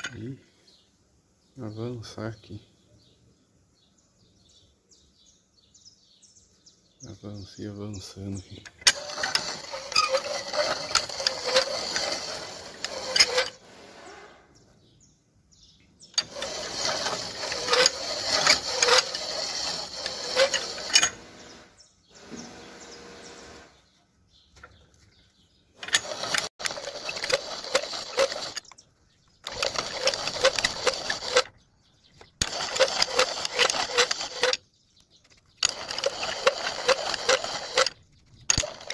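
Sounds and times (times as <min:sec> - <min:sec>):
lathe tool cutting metal: 0:08.9 - 0:13.6, 0:16.2 - 0:21.2, 0:25.8 - 0:28.6, 0:29.5 - 0:31.5, 0:32.4 - 0:34.6, 0:35.6 - 0:37.9.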